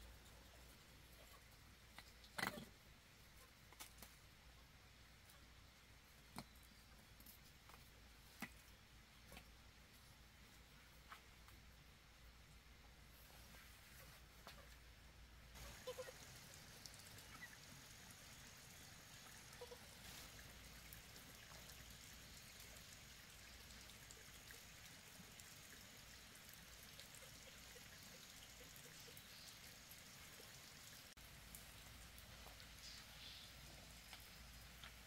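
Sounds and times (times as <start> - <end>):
faint steady hiss: 0.0 - 35.0
faint ticks: 31.5 - 35.0.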